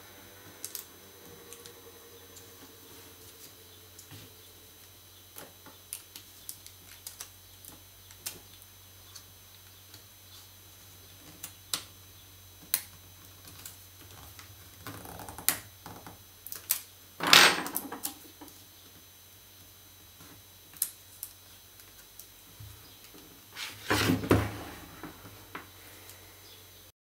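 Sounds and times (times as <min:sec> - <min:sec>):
short scraping rustle: 0:23.5 - 0:24.3.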